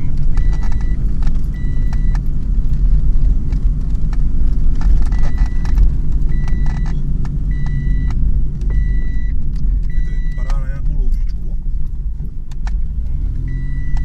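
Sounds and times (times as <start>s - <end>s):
engine drone inside car: 0.0s - 14.0s.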